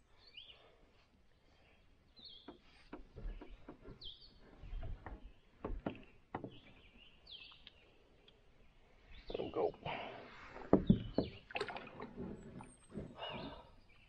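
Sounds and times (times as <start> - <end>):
bird chirping: 1.5 - 11.6
light clicks and knocks: 2.4 - 6.8.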